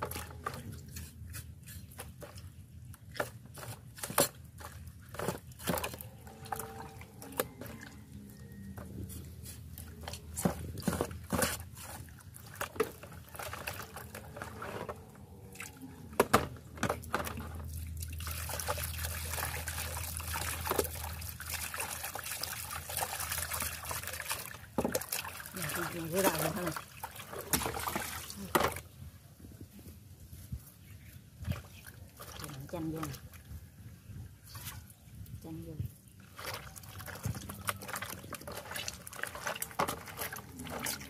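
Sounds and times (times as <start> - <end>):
water splashing in a basin: 0.0 - 29.0, 31.4 - 33.8, 34.4 - 41.0
running water stream: 16.8 - 29.0.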